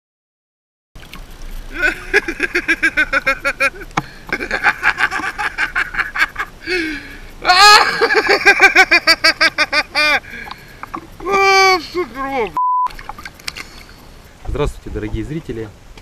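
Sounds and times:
man laughing: 1.7 - 10.4, 11.2 - 12.2
man crying out: 7.4 - 8.3, 11.2 - 12.4.

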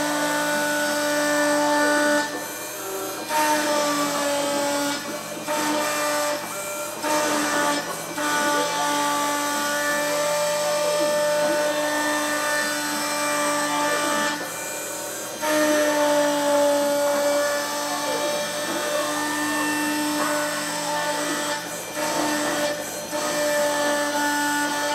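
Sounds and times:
engraving machine motor whine: 0.0 - 24.9.

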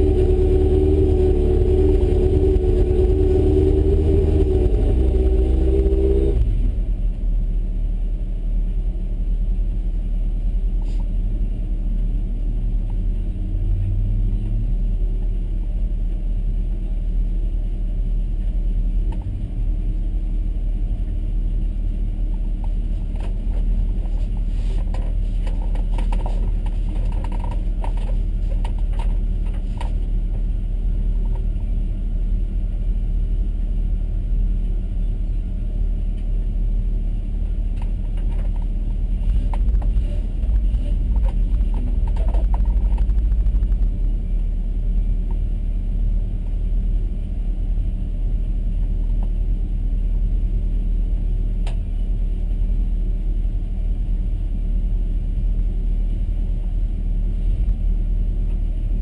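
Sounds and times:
race car engine under load: 0.0 - 59.0
clicks and rattles: 24.9 - 30.0, 37.8 - 44.1.

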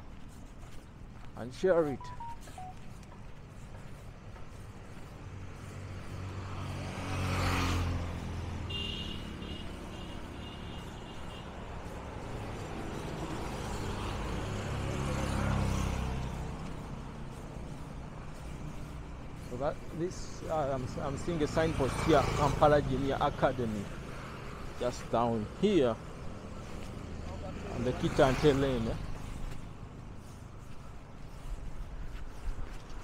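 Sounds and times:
vehicles passing close by: 0.0 - 33.0
high repeated pips: 1.8 - 2.8.

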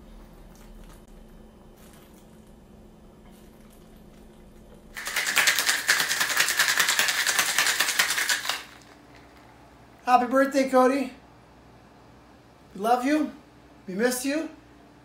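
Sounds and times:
ice rattling in cocktail shaker: 5.0 - 9.5.

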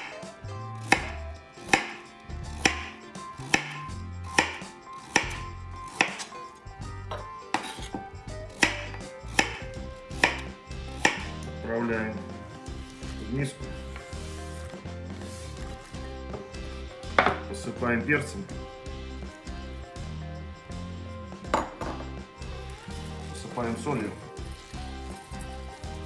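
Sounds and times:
knife chopping on cutting board: 0.0 - 0.2, 0.8 - 6.4, 7.1 - 11.5, 17.1 - 17.5.

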